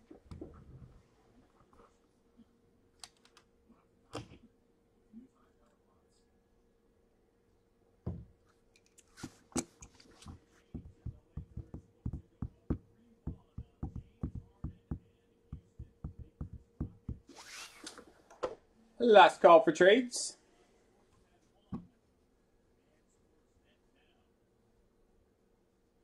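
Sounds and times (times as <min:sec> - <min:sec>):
light uneven knocks and taps: 0:09.6 - 0:17.2.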